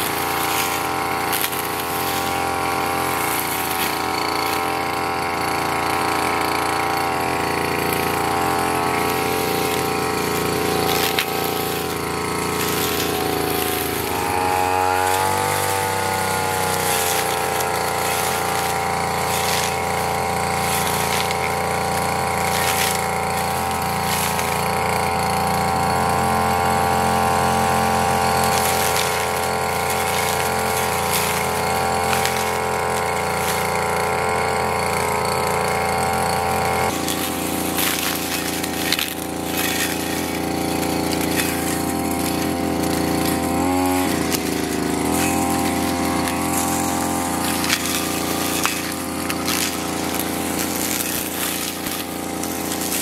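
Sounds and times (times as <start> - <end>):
brush cutter engine cutting grass: 0.0 - 53.0.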